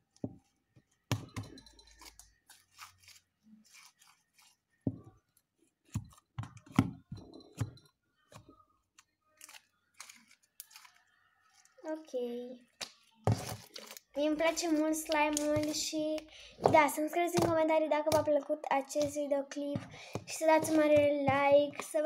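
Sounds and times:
slime squelching: 19.8s - 22.0s.

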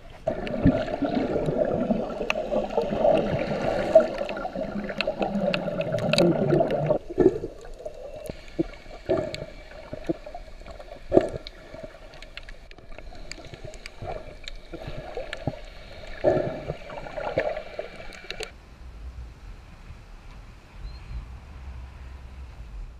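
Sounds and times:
muffled underwater bubbling: 0.0s - 18.5s
faint steady whine: 0.0s - 22.9s
underwater clicks: 0.2s - 18.5s.

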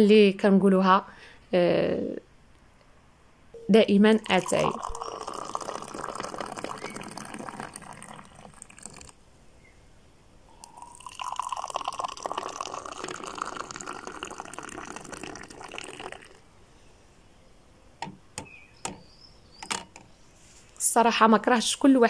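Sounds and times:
tea pouring into a glass: 4.1s - 9.2s, 10.6s - 16.4s.

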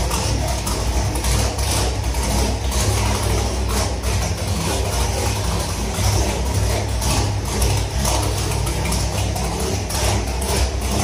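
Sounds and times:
engine idling with deep rumble: 0.0s - 11.0s.

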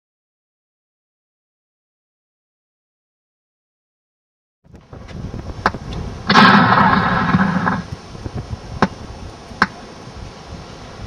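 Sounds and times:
loud sound effect blast: 6.3s - 7.9s.

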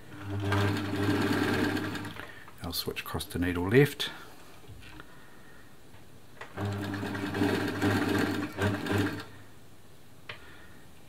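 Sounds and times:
sewing machine stitching: 0.1s - 2.2s, 6.5s - 9.3s.

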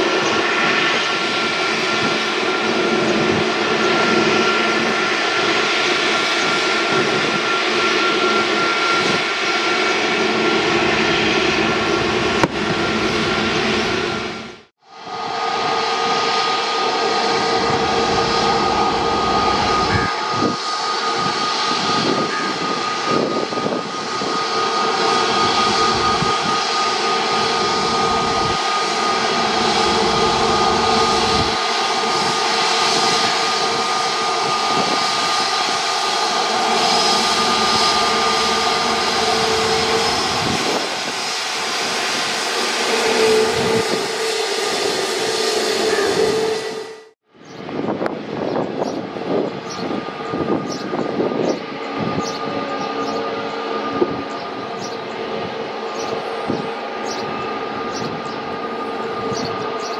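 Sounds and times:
jet engines whining: 0.0s - 59.9s.

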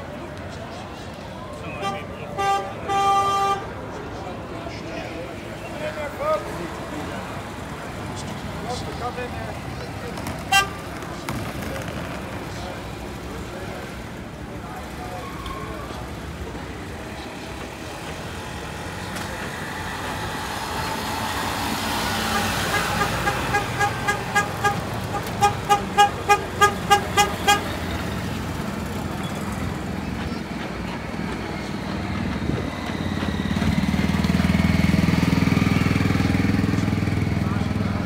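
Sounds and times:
crowd chatter: 0.0s - 38.0s
tug engines humming: 0.0s - 38.0s
small vehicle horn beeping: 1.8s - 3.7s, 10.5s - 10.9s, 22.3s - 28.0s.

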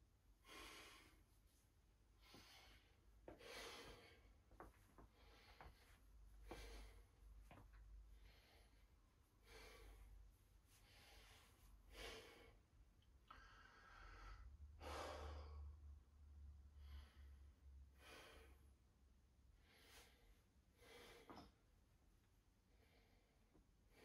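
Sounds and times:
man breathing heavily: 0.4s - 1.2s, 2.2s - 10.1s, 10.8s - 12.7s, 13.3s - 15.8s, 16.8s - 18.7s, 19.6s - 21.5s.

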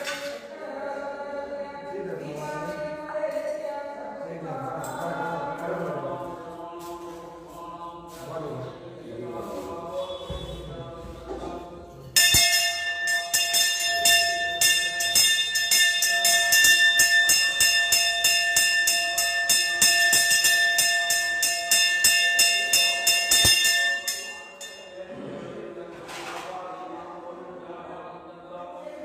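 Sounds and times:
faint chanting: 0.0s - 12.2s, 15.8s - 29.0s
hand bell rung rapidly: 12.2s - 25.0s.

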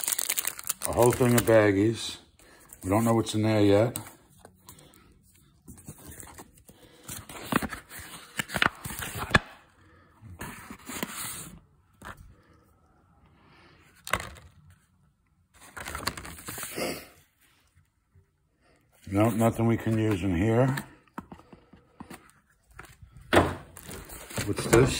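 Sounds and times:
plastic bags and paper crinkling: 0.0s - 4.9s, 22.7s - 24.9s.

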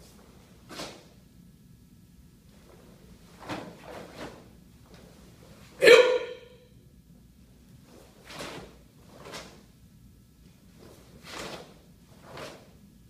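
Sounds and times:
person shouting with echo: 5.8s - 6.6s.

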